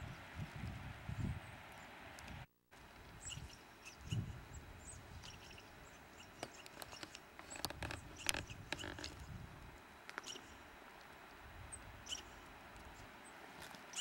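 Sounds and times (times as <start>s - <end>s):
twigs and brush crackling: 6.3s - 11.4s.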